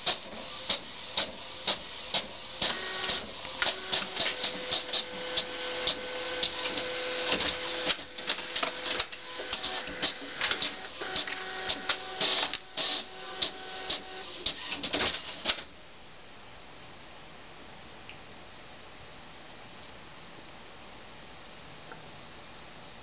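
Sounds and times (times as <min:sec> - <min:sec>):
printer motor tones: 0:00.0 - 0:15.6
printer clicking and clacking: 0:00.0 - 0:15.7.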